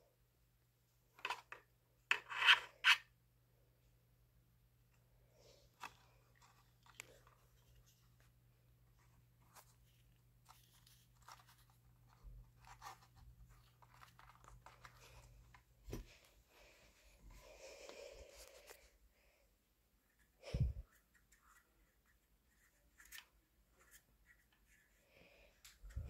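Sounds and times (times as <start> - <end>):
rubbing and rustling: 5.5 - 17.3.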